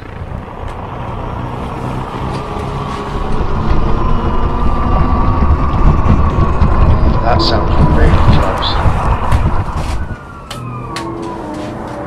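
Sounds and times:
deep rumble: 0.0s - 12.0s
thin steady whine: 4.9s - 12.0s.

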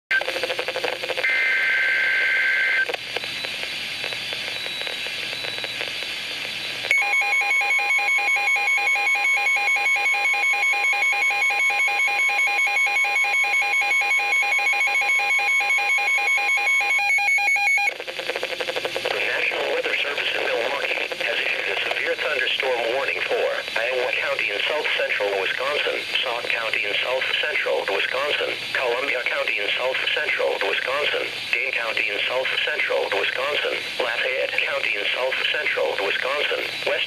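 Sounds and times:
radio static: 0.1s - 7.0s, 17.9s - 37.0s
rapid pulsing alarm beeps: 1.2s - 20.4s
steady warning alarm tone: 4.4s - 19.1s.

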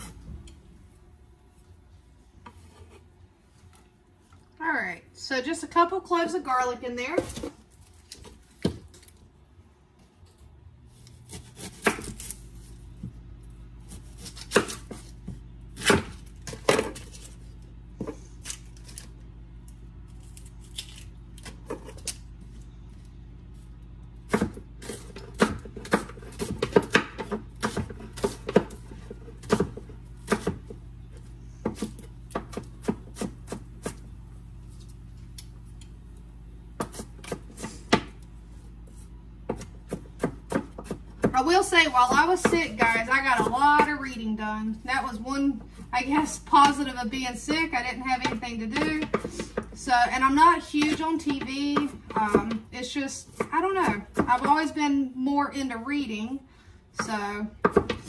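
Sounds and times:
steady low hum: 0.0s - 58.0s
knife chopping on wooden board: 11.3s - 12.4s, 13.9s - 17.0s, 24.3s - 34.0s, 36.8s - 38.2s, 39.4s - 44.0s, 48.2s - 49.8s, 50.8s - 52.7s, 57.0s - 58.0s.

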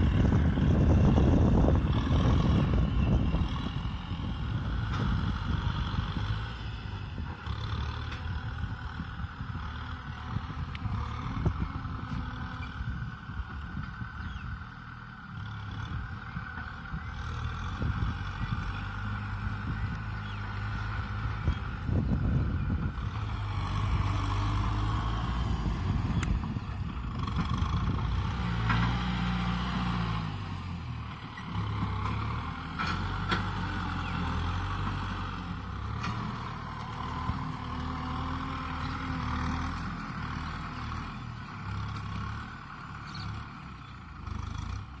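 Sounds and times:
tractor diesel engine running: 0.0s - 45.0s.

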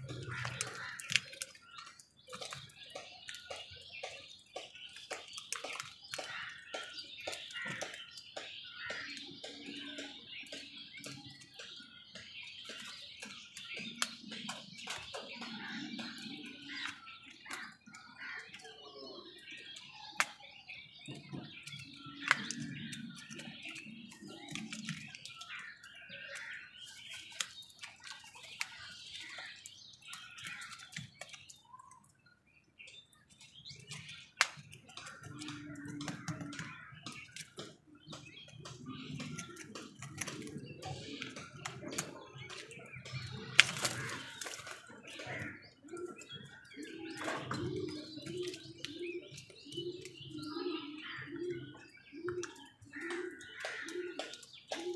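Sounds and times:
bird chirps: 0.0s - 54.9s
beaks knocking plastic bowl: 33.5s - 50.3s.

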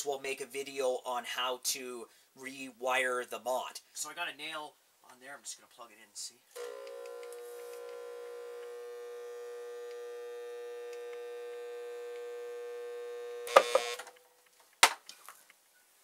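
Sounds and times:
nail crackling burst: 6.6s - 14.2s
transformer buzzing hum: 6.6s - 14.2s.

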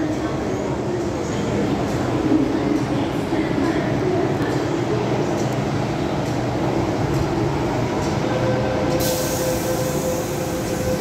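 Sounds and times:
train equipment humming: 0.0s - 11.0s
loud hiss: 9.0s - 11.0s.

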